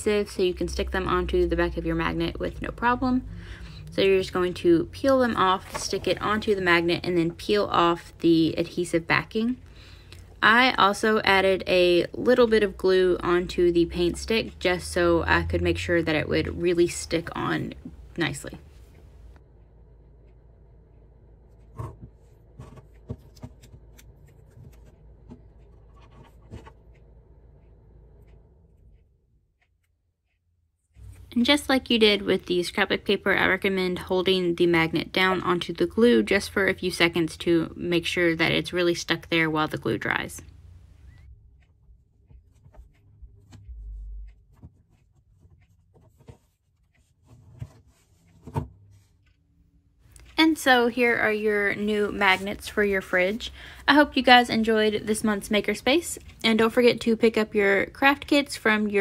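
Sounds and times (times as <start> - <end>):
light taps and scratches: 20.3 - 29.0, 41.0 - 49.4.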